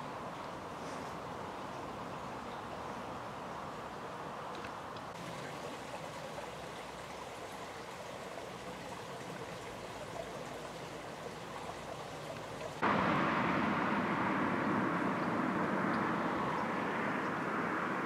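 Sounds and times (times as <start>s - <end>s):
steady outdoor rushing noise: 11.8s - 18.0s
loud steady rush: 12.8s - 18.0s.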